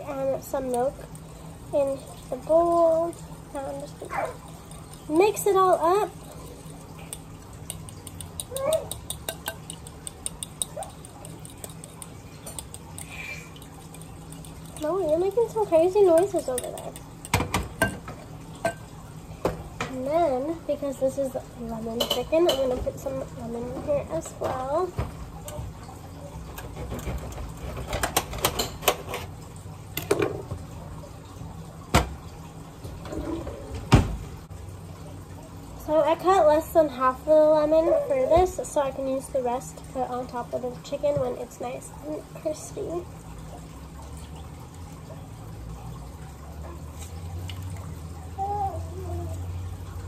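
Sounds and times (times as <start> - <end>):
juice dripping into a bowl: 0.0 - 26.7, 38.6 - 50.0
fork beating eggs in glass bowl: 2.3 - 17.4.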